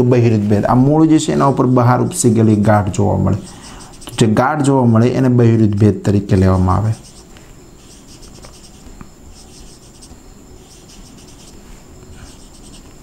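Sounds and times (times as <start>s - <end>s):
marker scratching on whiteboard: 3.3s - 4.3s, 6.3s - 13.0s.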